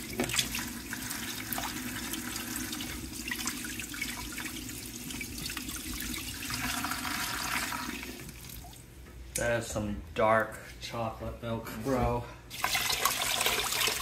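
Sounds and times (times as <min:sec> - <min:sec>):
water pouring into a plastic bucket: 0:00.0 - 0:08.8, 0:12.5 - 0:14.0.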